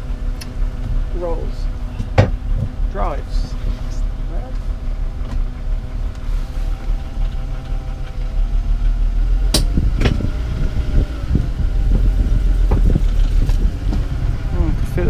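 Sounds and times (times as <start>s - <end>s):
car engine rumbling: 0.0s - 15.0s
sharp clicks and knocks: 9.5s - 10.2s.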